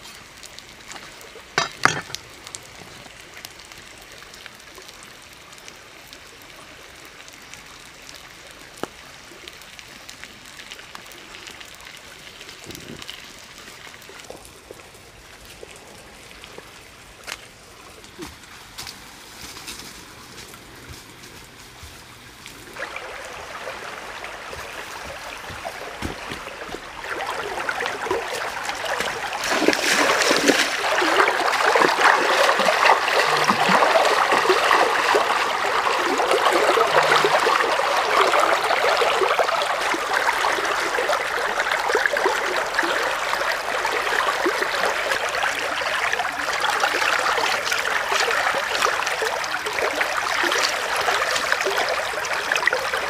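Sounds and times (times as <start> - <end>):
stream running over rocks: 0.0 - 53.0
splashing from wading: 22.8 - 53.0.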